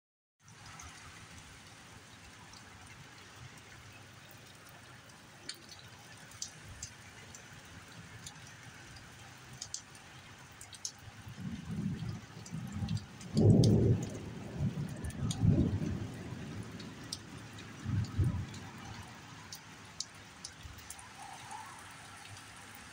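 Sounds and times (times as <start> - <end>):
steady rain hissing: 0.4 - 22.9
drips ticking: 0.5 - 22.9
low rumble of thunder: 11.2 - 19.0.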